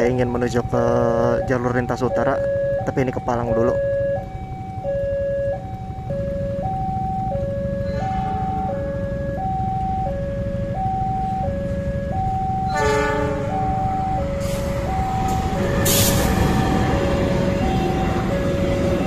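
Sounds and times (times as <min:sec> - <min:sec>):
two-tone crossing alarm chime: 0:01.1 - 0:19.0
locomotive rumble passing: 0:05.6 - 0:19.0
locomotive horn: 0:12.6 - 0:19.0.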